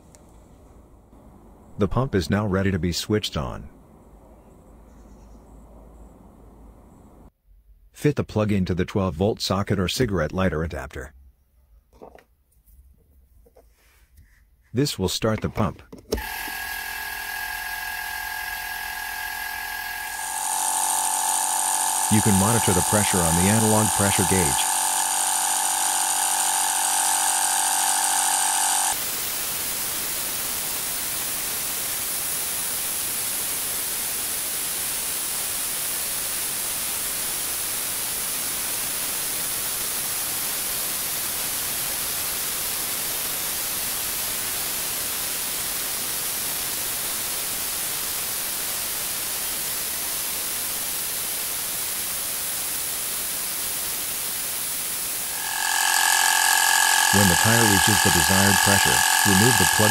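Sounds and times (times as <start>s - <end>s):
air compressor buzzing whine: 16.2s - 29.0s, 49.4s - 59.9s
even hiss: 28.9s - 59.9s.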